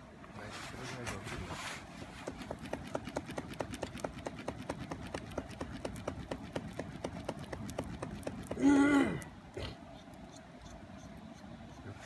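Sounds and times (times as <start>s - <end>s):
hand fan flapping: 0.8s - 8.9s
fire crackling: 0.9s - 11.3s.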